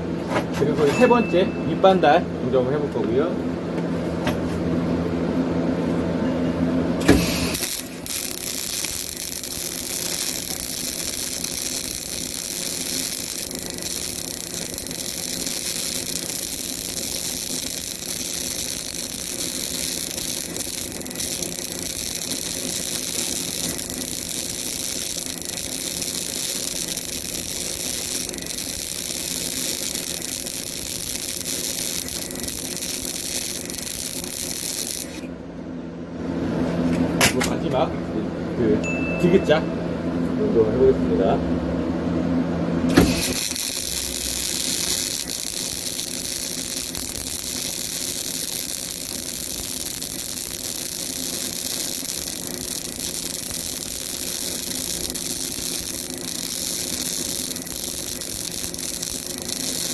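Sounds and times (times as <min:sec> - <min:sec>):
machine hum: 0:03.4 - 0:37.2, 0:39.7 - 0:59.9
welding arc crackling and sizzling: 0:07.0 - 0:35.3, 0:42.9 - 0:59.9
welding arc striking click: 0:07.0 - 0:35.3, 0:42.9 - 0:59.9.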